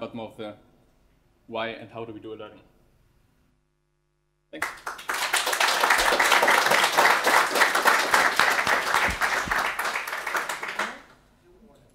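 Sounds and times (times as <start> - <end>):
audience applauding: 4.6 - 11.2.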